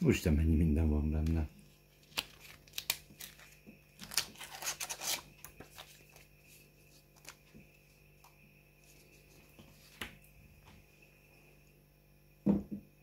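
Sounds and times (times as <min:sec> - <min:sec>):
paper and plastic rustling: 0:01.9 - 0:07.6.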